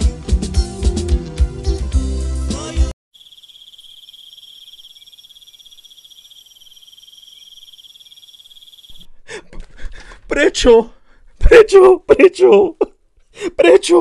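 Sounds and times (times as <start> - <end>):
crickets trilling: 3.1 - 9.1.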